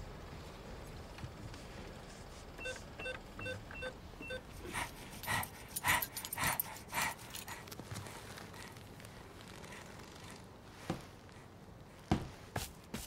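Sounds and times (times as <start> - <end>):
keypad beeps: 2.6 - 4.4
dog panting: 4.6 - 8.7.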